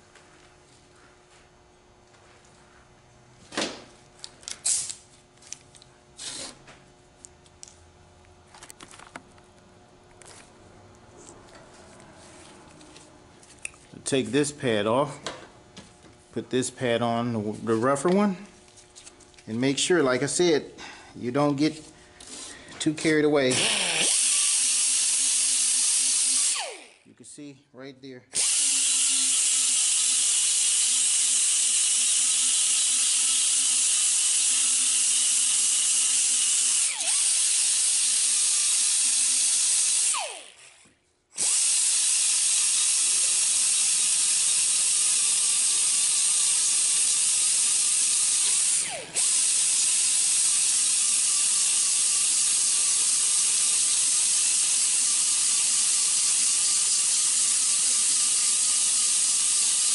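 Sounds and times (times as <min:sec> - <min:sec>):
power sander grinding metal: 0:28.4 - 0:59.9.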